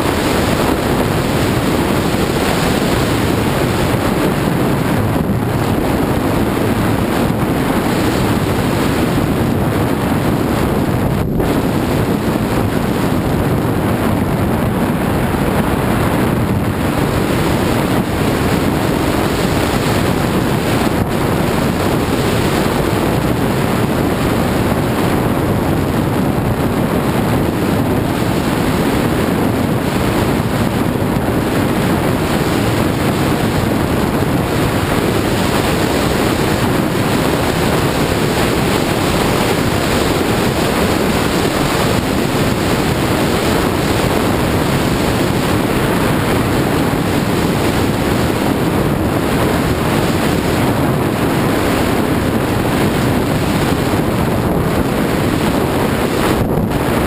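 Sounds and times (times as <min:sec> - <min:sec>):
wind buffeting microphone: 0:00.0 - 0:57.0.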